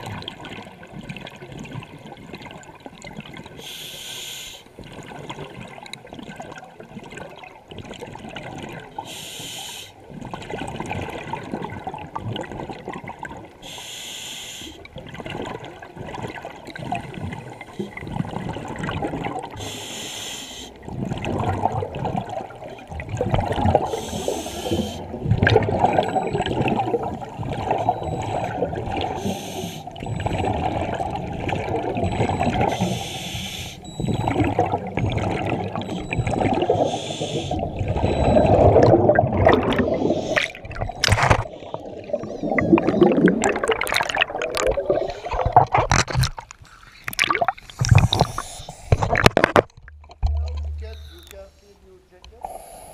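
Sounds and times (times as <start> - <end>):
exhaled air bubbling: 0.0 - 3.8, 4.7 - 51.5
regulator inhalation hiss: 3.6 - 4.6, 9.1 - 10.0, 13.6 - 14.8, 19.6 - 20.8, 23.9 - 25.0, 29.2 - 30.0, 32.7 - 33.8, 36.8 - 37.6, 47.7 - 49.0, 52.4 - 52.9.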